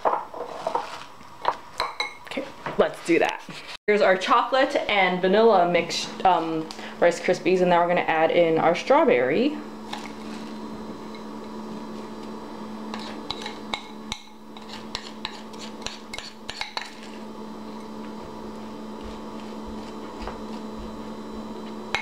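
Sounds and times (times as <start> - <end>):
steady low hum: 3.4 - 22.0
spoon scraping and clicking on bowl: 12.9 - 17.2.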